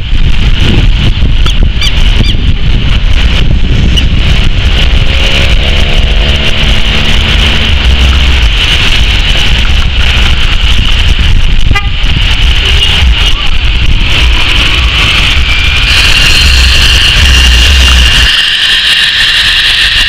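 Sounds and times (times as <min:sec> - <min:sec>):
turboprop engines at takeoff: 0:00.0 - 0:20.0.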